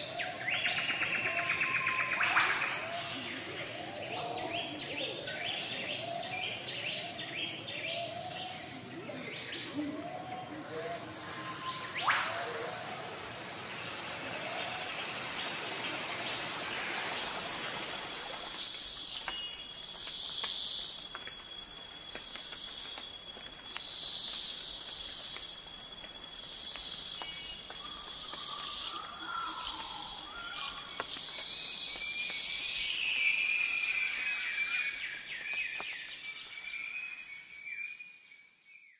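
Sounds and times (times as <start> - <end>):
faint bird calls: 4.9 - 16.6, 27.2 - 31.3
short chirping calls: 10.5 - 15.9
waterfall rushing water: 11.0 - 18.9.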